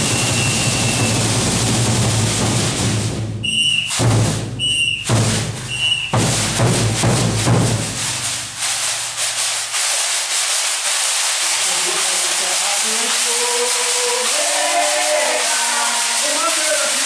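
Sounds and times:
drum strokes: 0.0 - 17.0
metal rattles shaken: 6.1 - 17.0.

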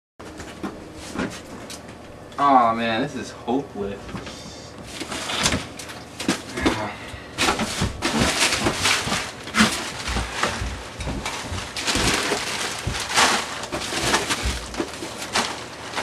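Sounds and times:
plastic bags crinkling: 7.3 - 16.0
dull thumps: 7.4 - 16.0.

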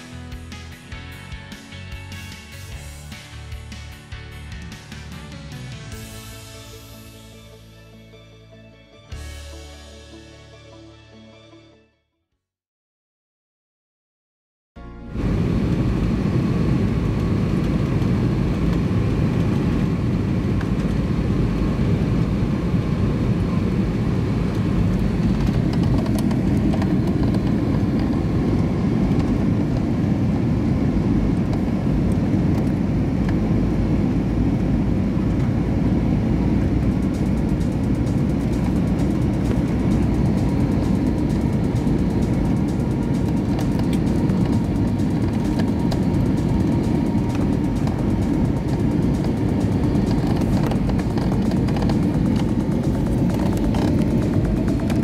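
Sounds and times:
aircraft cabin engine rumble: 15.1 - 55.0.

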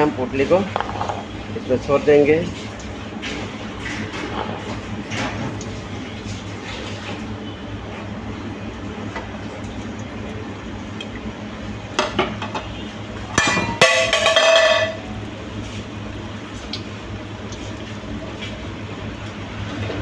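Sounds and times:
steady low hum and hiss: 7.2 - 20.0
metal utensil clattering on frying pan: 13.4 - 15.0.

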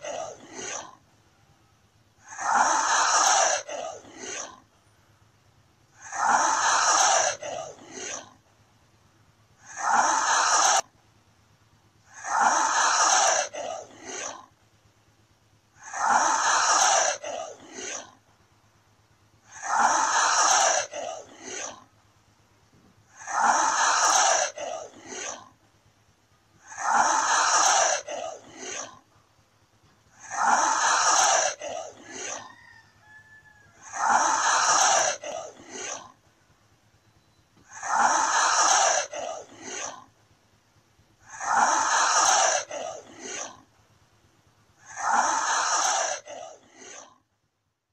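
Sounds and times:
komodo dragon hissing: 2.2 - 4.6, 6.0 - 8.4, 9.6 - 10.8, 12.1 - 14.5, 15.8 - 18.2, 19.5 - 21.9, 23.1 - 25.5, 26.6 - 29.0, 30.1 - 32.4, 33.8 - 36.2, 37.7 - 40.1, 41.2 - 43.6, 44.8 - 47.2.

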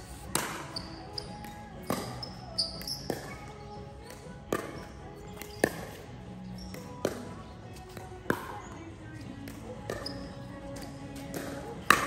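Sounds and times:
music: 0.0 - 12.0
ball being struck: 0.3 - 0.8, 1.8 - 2.2, 4.5 - 6.0, 6.7 - 7.4, 10.8 - 12.0.

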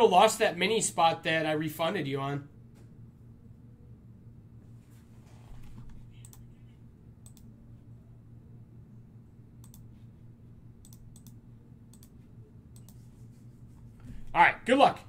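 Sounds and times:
steady low hum: 0.0 - 15.0
faint clicking: 7.2 - 7.5, 9.6 - 9.9, 10.8 - 13.0.

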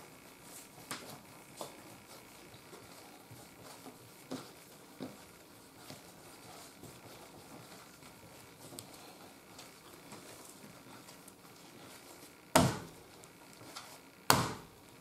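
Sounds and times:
dough patting on wooden board: 12.5 - 13.1, 14.3 - 14.8.

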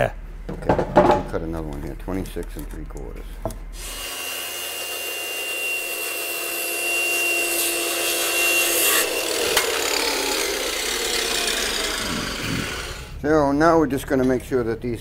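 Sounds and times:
circular saw cutting wood: 3.8 - 13.2.

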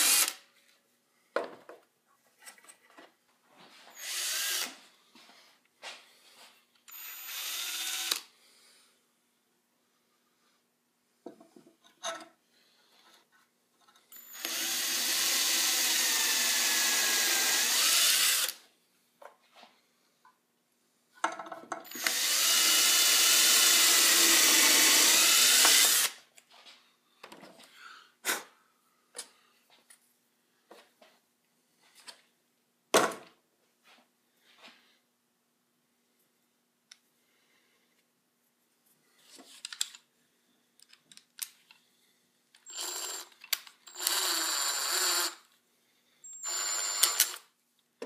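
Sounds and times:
power drill boring into wood: 0.0 - 0.4, 4.0 - 4.8, 6.9 - 8.2, 14.2 - 18.6, 21.9 - 26.2, 42.7 - 43.3, 43.9 - 45.4, 46.3 - 47.4.

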